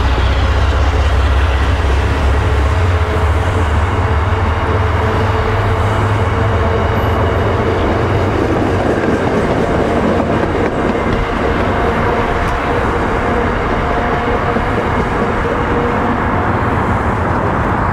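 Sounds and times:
train coaches rolling on rails: 0.0s - 17.9s.

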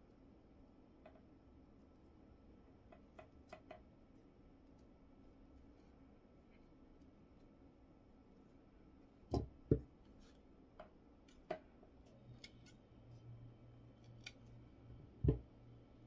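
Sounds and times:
scissors snipping cable: 14.0s - 14.5s.

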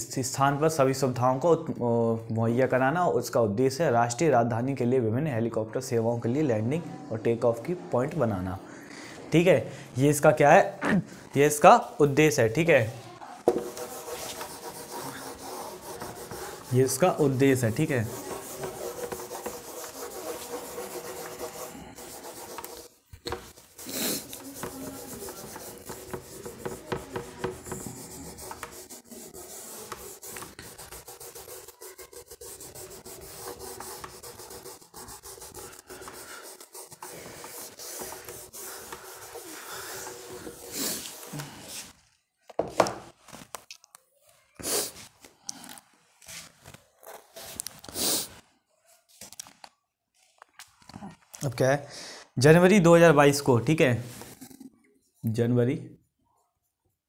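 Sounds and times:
duster rubbing on whiteboard: 13.4s - 41.9s.

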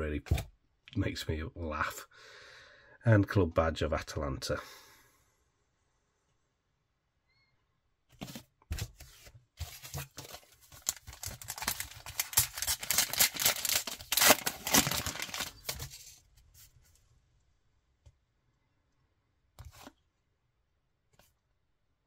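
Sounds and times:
plastic wrapper tearing and crinkling: 10.0s - 16.1s.

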